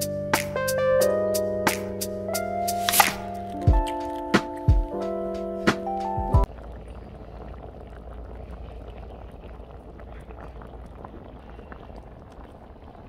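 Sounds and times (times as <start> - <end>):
sauce bubbling in a pan: 6.4 - 13.0.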